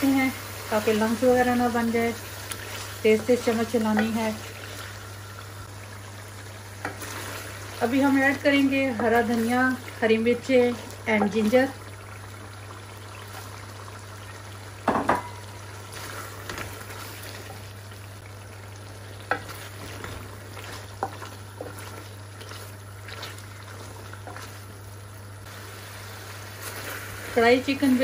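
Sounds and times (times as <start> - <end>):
chicken sizzling in a pan: 0.0 - 28.0
wooden spoon stirring: 6.8 - 12.0, 18.8 - 25.2.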